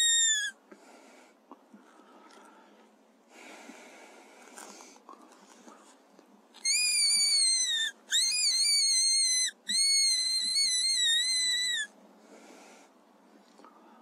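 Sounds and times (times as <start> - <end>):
high-pitched predator call squeals: 0.0 - 0.6, 6.6 - 12.0.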